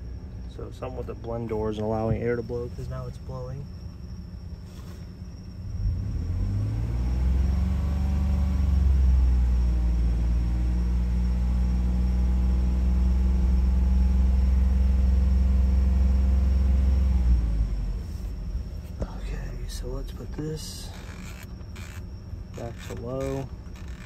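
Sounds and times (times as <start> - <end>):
car engine revving: 5.6 - 19.0, 19.6 - 24.0.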